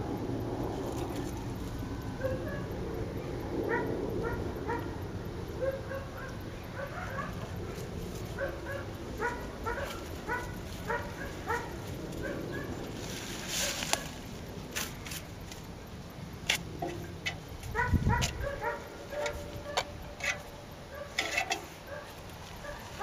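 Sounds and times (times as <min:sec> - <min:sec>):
dog barking: 0:02.2 - 0:02.7, 0:03.7 - 0:04.9, 0:05.6 - 0:07.4, 0:08.4 - 0:12.8, 0:17.7 - 0:19.8, 0:20.9 - 0:21.2, 0:21.9 - 0:22.9.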